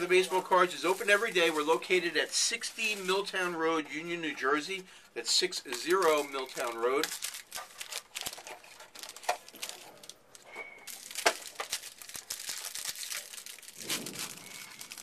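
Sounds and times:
plastic packaging crinkling and tearing: 0.0 - 3.8, 5.7 - 15.0.

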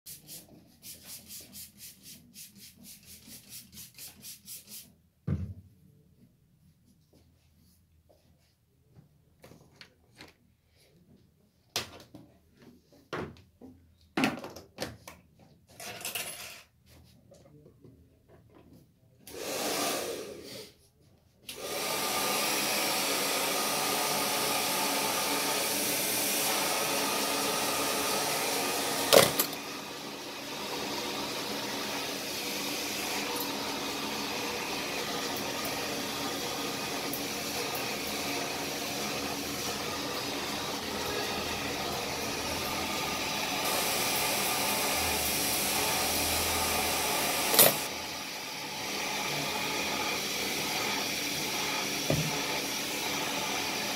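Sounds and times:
hair dryer blowing: 19.3 - 20.8, 21.5 - 53.9.

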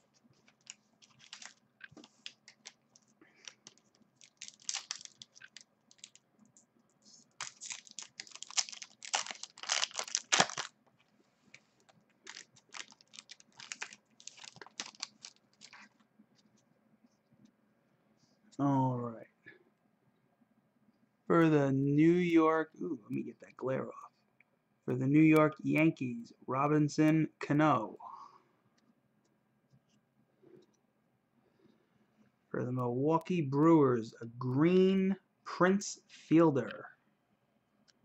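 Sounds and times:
foil wrappers crinkling and tearing: 0.3 - 6.2, 7.2 - 10.8, 12.2 - 16.0.

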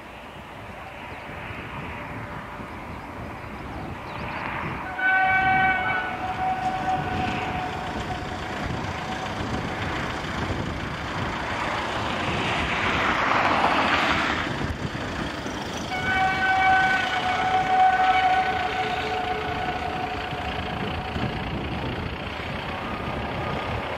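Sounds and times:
train rushing noise: 0.0 - 23.9
locomotive horn blast: 4.6 - 9.8, 15.9 - 21.7.

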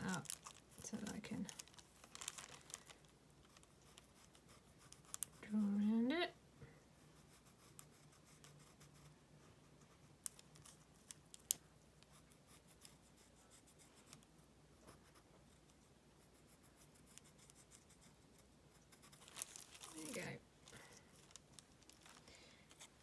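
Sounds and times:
low steady hum: 0.0 - 23.0
pencil scratching on paper: 3.8 - 5.8, 7.1 - 9.1, 12.1 - 14.3, 14.9 - 19.3.

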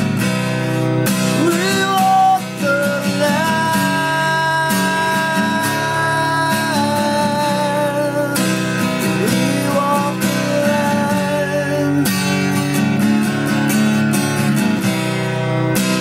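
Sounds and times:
acoustic guitar chords strummed: 0.0 - 16.0.

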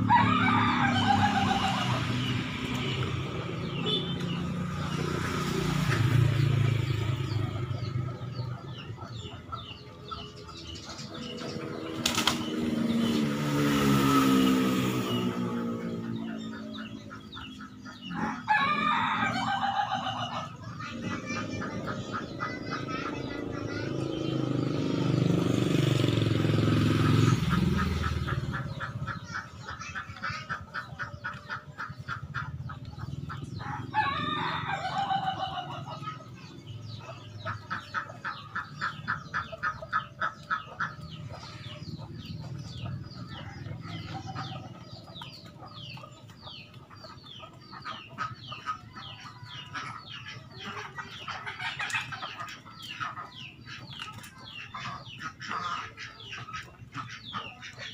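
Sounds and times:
rooster crowing: 0.0 - 2.0, 18.4 - 20.3, 33.7 - 35.7
motor vehicle passing: 0.0 - 57.9.

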